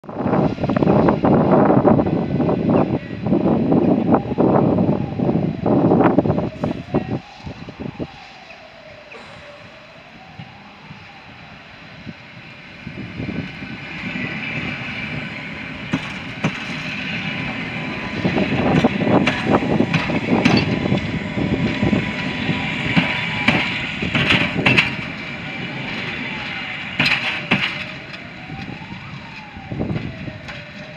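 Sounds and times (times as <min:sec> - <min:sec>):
electric train rumbling: 0:00.0 - 0:30.9
high whine of train: 0:00.0 - 0:30.9
wheels knocking over rail joints: 0:13.8 - 0:30.9.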